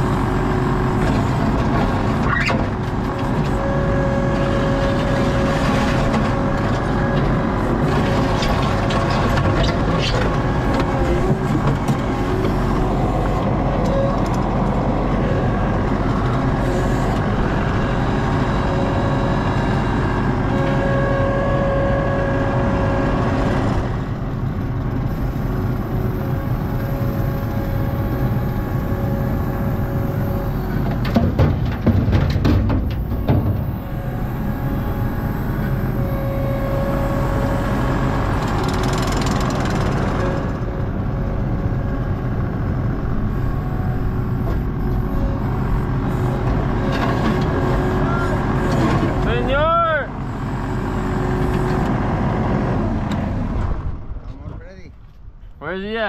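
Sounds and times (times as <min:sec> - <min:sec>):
hydraulic whine: 0:00.0 - 0:54.0
diesel engine under load: 0:00.0 - 0:56.0
machine rattles and knocks: 0:31.0 - 0:33.7.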